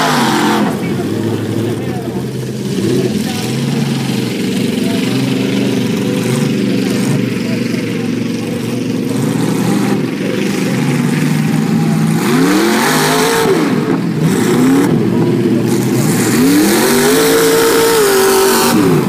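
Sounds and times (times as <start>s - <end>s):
buggy engine revving: 0.0s - 19.0s.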